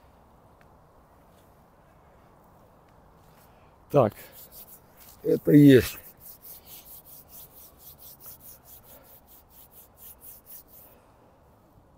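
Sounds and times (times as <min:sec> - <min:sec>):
palms rubbing together: 0:04.0 - 0:10.9.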